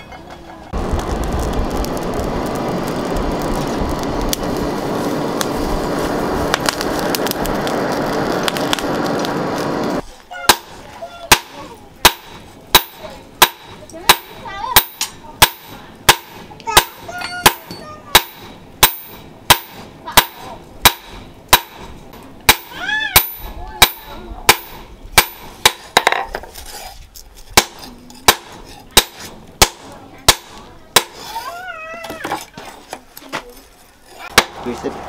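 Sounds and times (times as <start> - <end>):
hammer clanging on anvil: 11.3 - 21.9.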